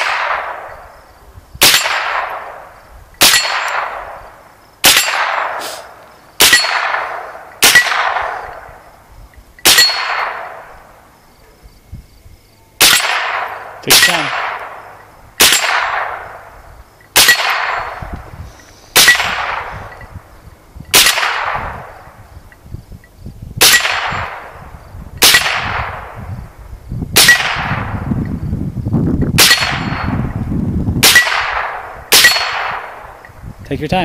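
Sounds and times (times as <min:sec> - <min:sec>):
rifle shots with echo: 0:00.0 - 0:01.0, 0:01.6 - 0:08.9, 0:09.6 - 0:11.0, 0:12.8 - 0:16.6, 0:17.2 - 0:18.2, 0:19.0 - 0:20.0, 0:20.9 - 0:22.2, 0:23.6 - 0:26.2, 0:27.2 - 0:28.1, 0:29.4 - 0:30.3, 0:31.0 - 0:33.2.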